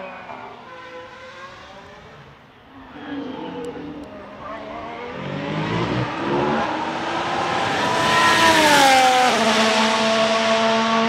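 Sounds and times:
race car engine accelerating past: 2.8s - 11.0s.

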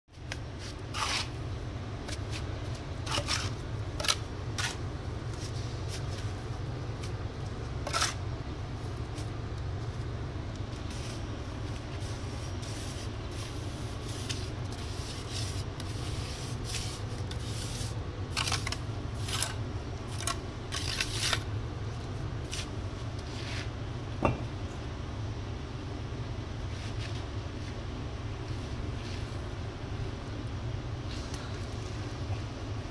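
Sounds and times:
trowel scraping mortar and bricks: 0.5s - 6.4s, 7.8s - 8.3s, 11.8s - 21.5s.

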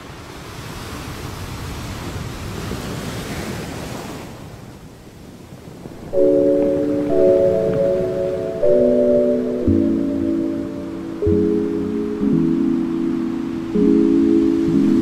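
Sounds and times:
waves washing on shingle beach: 0.0s - 14.8s
music with mallet-like tones: 6.2s - 15.0s.

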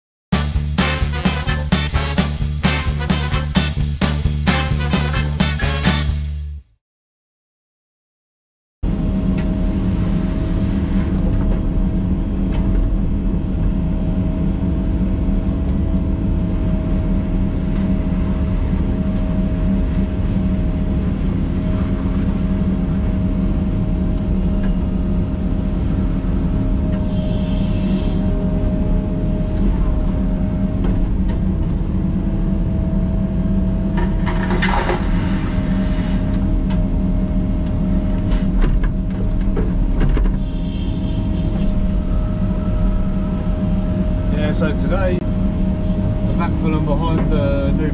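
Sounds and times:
excavator engine and hydraulics: 8.8s - 47.9s.

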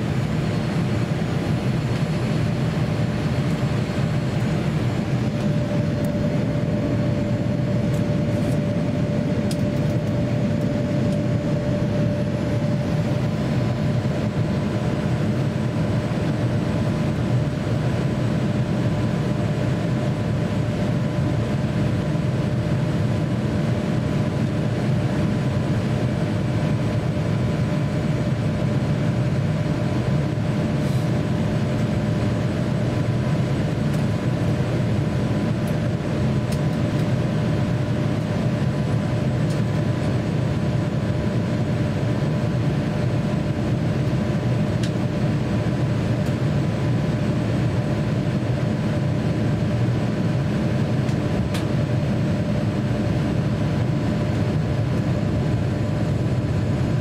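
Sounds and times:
airliner cabin rumble: 0.0s - 57.0s.

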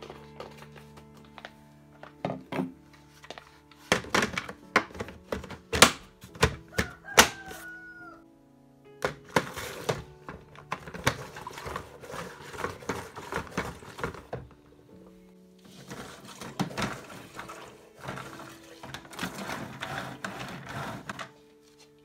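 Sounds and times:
plastic bucket knocking and clattering: 2.0s - 2.8s, 3.9s - 7.5s, 9.0s - 14.6s, 15.7s - 21.3s
mop pad scraping clicks: 19.1s - 21.4s.

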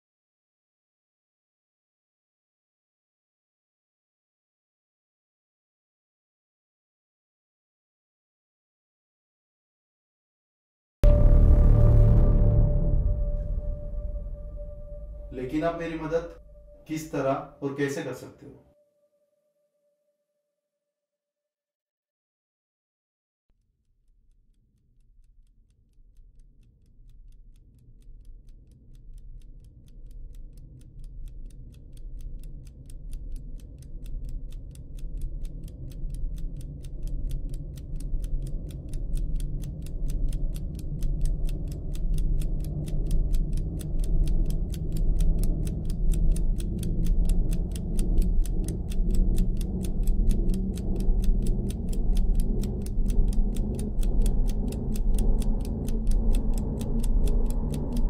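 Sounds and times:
clock-like ticking: 11.0s - 18.3s, 24.0s - 58.0s
low throbbing drone: 11.0s - 18.3s, 29.0s - 58.0s.

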